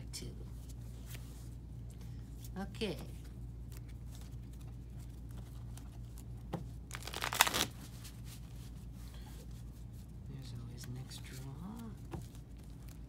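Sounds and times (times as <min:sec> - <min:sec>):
rapid card flicks shuffling: 0:03.6 - 0:08.4.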